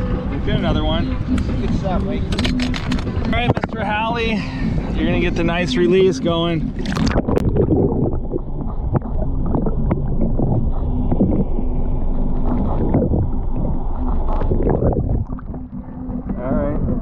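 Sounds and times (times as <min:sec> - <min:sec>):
low steady hum: 0:00.0 - 0:17.0
underwater sloshing and bubbling: 0:00.0 - 0:17.0
camera splashing into water: 0:06.8 - 0:08.0.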